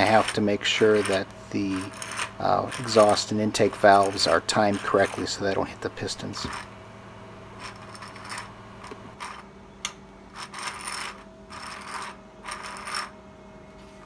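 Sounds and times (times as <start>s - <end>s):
plastic rattling and rubbing: 0.0s - 5.4s, 10.4s - 13.1s
faint steady hum: 0.0s - 14.0s.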